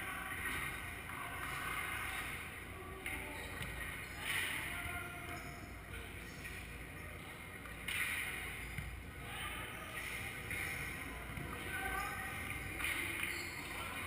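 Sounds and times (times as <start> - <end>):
distant indistinct voices: 0.0 - 14.0.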